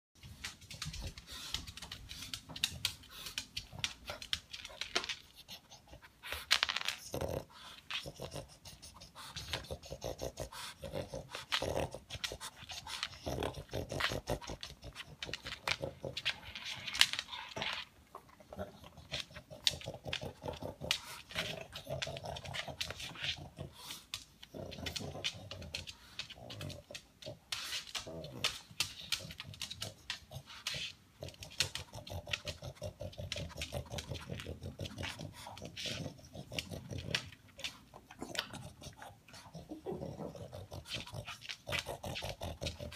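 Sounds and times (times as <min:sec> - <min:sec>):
dog sniffing and snuffling: 0:00.2 - 0:42.9.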